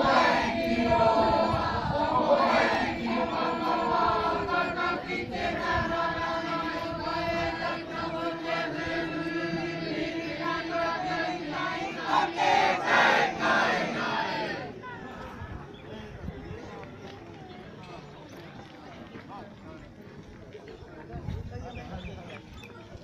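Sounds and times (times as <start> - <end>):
group chanting in long notes: 0.0 - 14.8.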